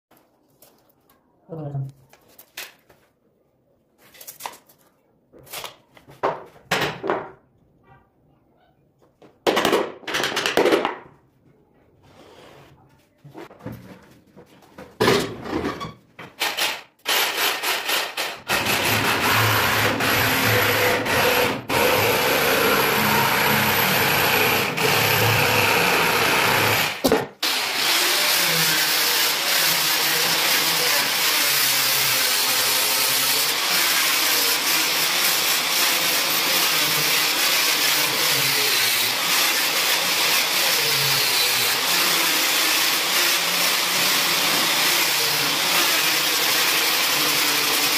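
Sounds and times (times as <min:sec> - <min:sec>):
angle grinder grinding wood: 0:17.1 - 0:47.9.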